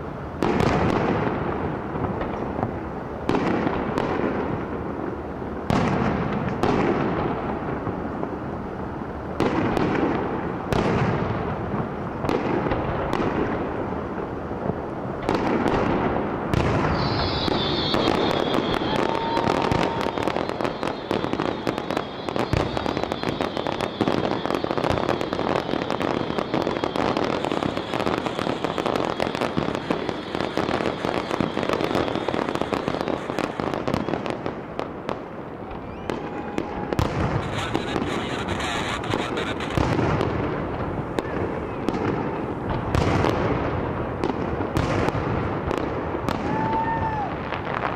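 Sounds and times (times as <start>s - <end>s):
crackling fireworks barrage: 0.0s - 47.9s
fireworks bursts: 0.0s - 47.9s
steady high whistle: 16.9s - 34.2s.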